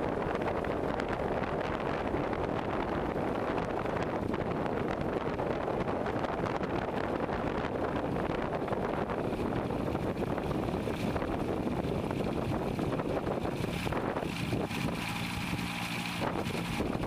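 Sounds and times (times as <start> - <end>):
gyroplane engine and propeller: 0.0 - 17.0
wind buffeting microphone: 0.0 - 17.0
rotor turning: 8.0 - 17.0.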